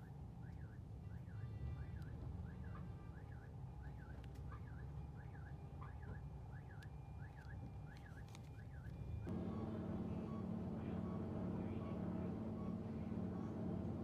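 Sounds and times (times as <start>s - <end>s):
engine hum: 0.0s - 14.0s
street traffic noise: 0.0s - 14.0s.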